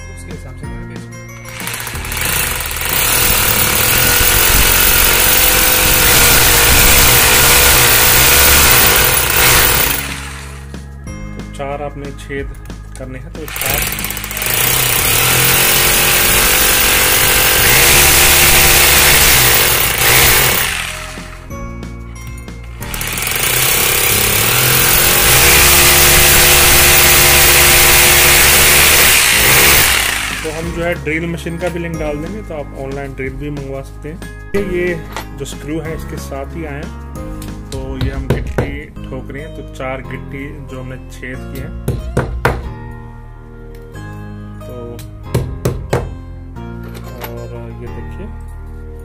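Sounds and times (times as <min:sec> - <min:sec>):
hammer drill boring into brick: 0:01.4 - 0:10.7, 0:13.5 - 0:21.5, 0:22.7 - 0:30.8.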